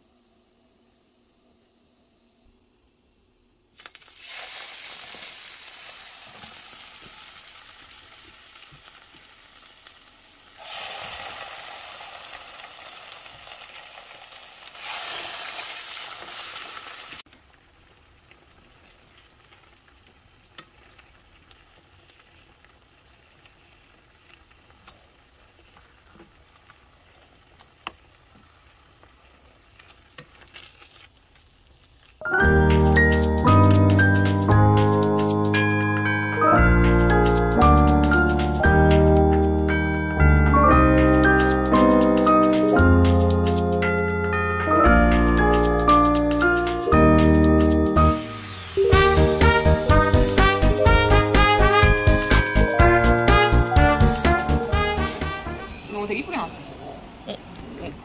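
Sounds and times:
food sizzling in frying pan: 3.8s - 32.2s, 46.0s - 55.8s.

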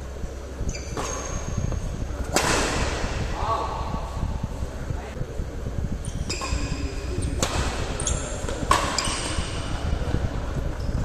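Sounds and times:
rackets hitting shuttlecock: 0.9s - 3.3s, 6.3s - 9.8s.

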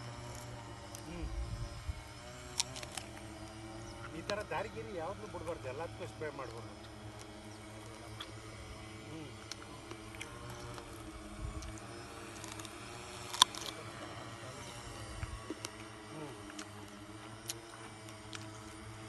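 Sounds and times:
drone rotors buzzing: 0.0s - 19.0s.

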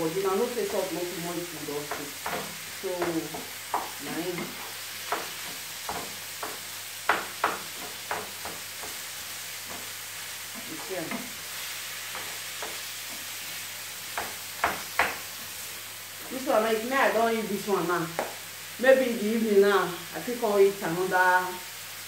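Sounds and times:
vegetables sizzling in a frying pan: 0.0s - 22.0s
wooden spoon knocking on a pan: 1.5s - 11.4s, 12.1s - 13.3s, 14.1s - 15.4s, 18.1s - 18.4s.

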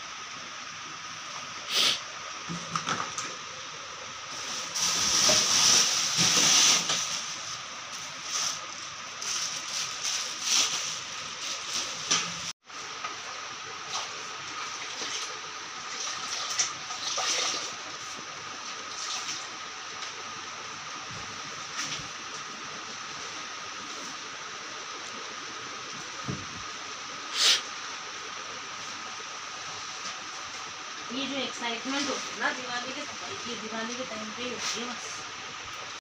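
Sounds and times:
steady hiss: 0.0s - 16.0s, 17.6s - 36.0s
plastic sacks rustling: 4.3s - 12.5s.

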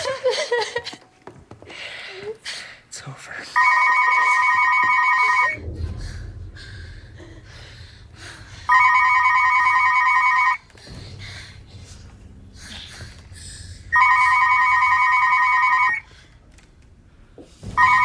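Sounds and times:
telephone electronic warbling ring: 3.6s - 5.6s, 8.7s - 10.6s, 14.0s - 16.0s, 17.8s - 18.0s
low rumble: 5.2s - 14.0s.

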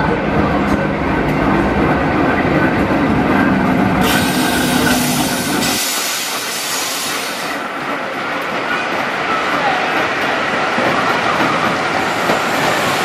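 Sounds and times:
train wheels rumbling on rails: 0.0s - 13.0s
loud hiss: 4.0s - 7.6s.

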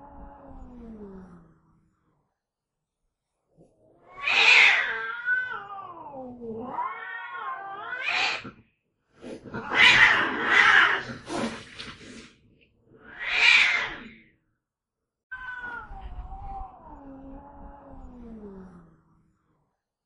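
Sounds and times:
cat calling harshly: 4.1s - 6.1s, 6.7s - 8.5s, 9.6s - 11.1s, 13.0s - 14.1s.

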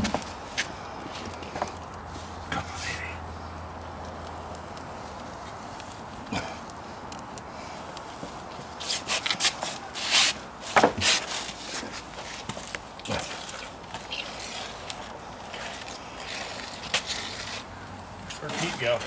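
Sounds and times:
mortar spurting from grout bag: 8.8s - 19.0s.

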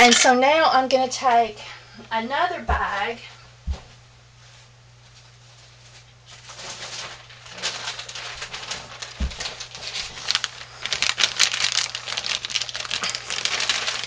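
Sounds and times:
plastic bag rustling: 4.4s - 14.0s.

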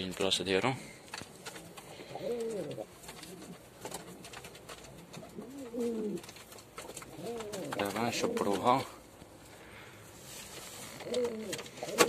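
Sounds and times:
pigeon cooing: 1.5s - 8.6s, 10.8s - 12.0s.

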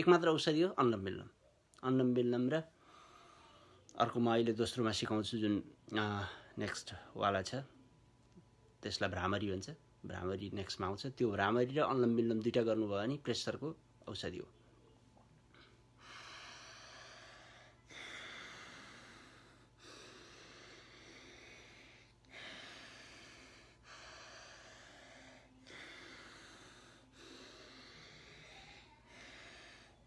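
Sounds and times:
hissing nostril breaths: 16.0s - 30.0s.

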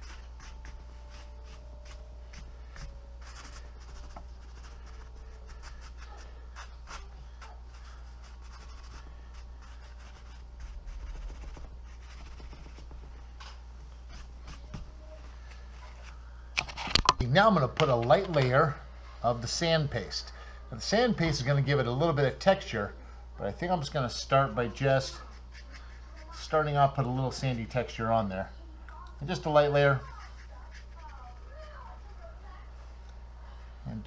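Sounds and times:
low steady hum: 0.0s - 34.0s
cloth rag rubbing wax on paper: 3.2s - 13.0s, 30.0s - 31.9s.

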